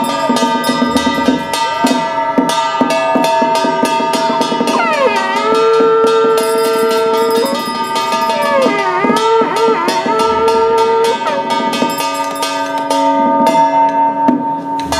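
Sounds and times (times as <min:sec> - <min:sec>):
hand bell shaken: 0:00.0 - 0:04.3, 0:06.1 - 0:09.0, 0:11.6 - 0:13.0.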